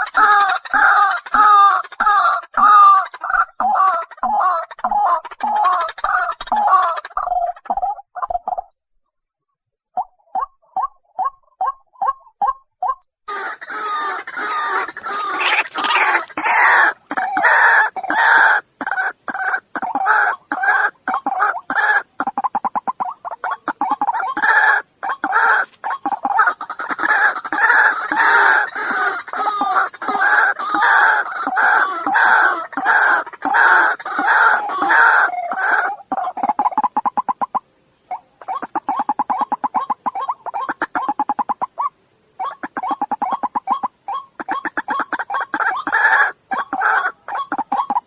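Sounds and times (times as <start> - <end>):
bird harsh calls: 13.3 - 48.0.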